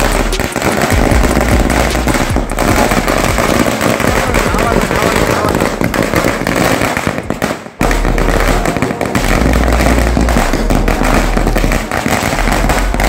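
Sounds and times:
firecracker string crackling: 0.0 - 13.0.

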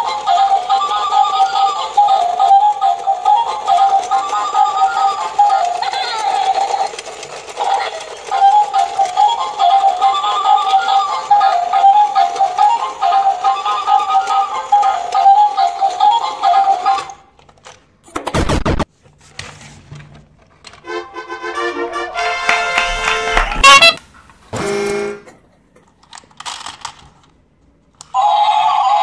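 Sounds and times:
toy electronic melody: 0.0 - 17.2, 21.1 - 24.0
loud burst of noise: 18.4 - 18.8.

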